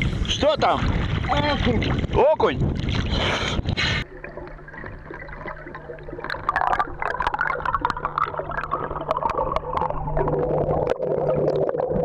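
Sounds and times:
low steady hum: 0.0s - 12.0s
underwater bubbling: 0.0s - 12.0s
water sloshing: 0.0s - 12.0s
crackling clicks underwater: 3.7s - 12.0s.

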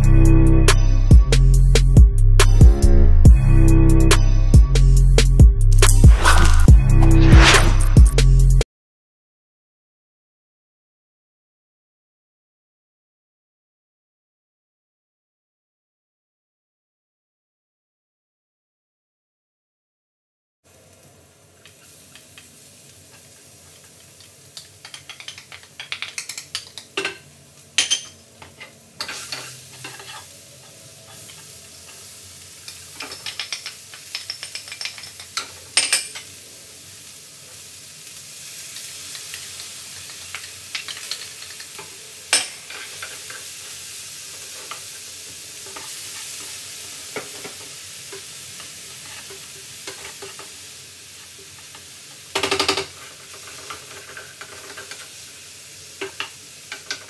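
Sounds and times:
vegetables sizzling in oil: 20.7s - 57.0s.

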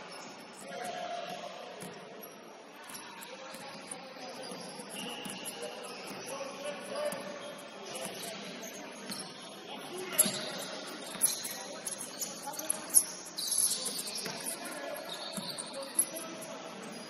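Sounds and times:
sneakers squeaking on court: 0.0s - 17.0s
basketball bouncing thumps: 1.2s - 2.0s.

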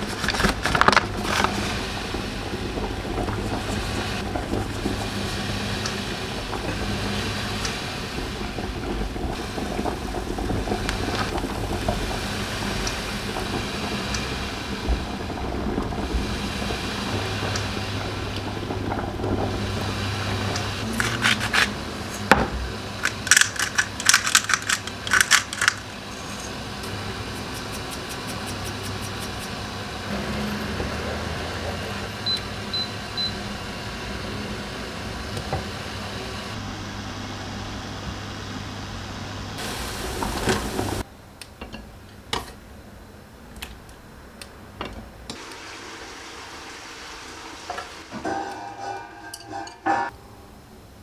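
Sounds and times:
low appliance hum: 0.0s - 51.0s
utensils and dishes clattering: 20.8s - 22.3s, 23.0s - 29.5s, 48.1s - 50.2s.

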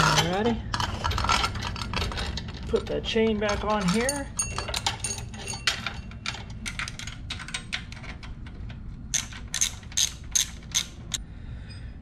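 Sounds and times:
ratchet wrench clicking: 9.1s - 11.2s.

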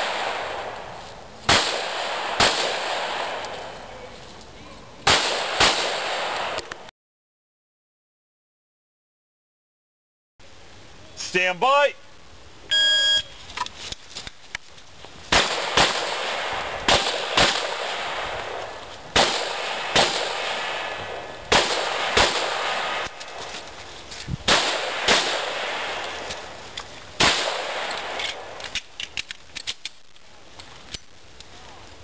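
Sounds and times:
electronic shot-timer beep: 12.7s - 13.3s.

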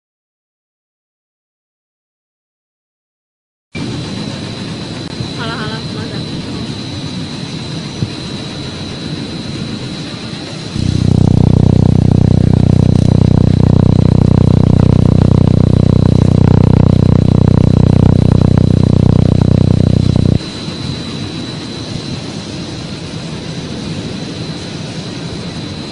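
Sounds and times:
laser welder rapid buzz: 10.8s - 20.4s.

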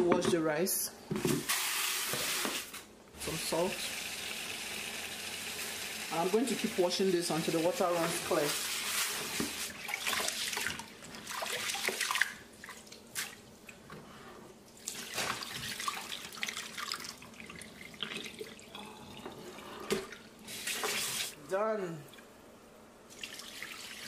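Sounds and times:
tap water running: 1.4s - 13.0s, 14.8s - 21.4s, 23.1s - 24.0s.

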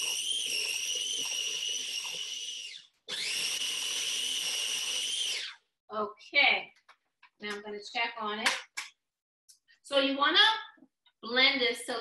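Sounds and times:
blender motor whining: 0.0s - 5.6s.

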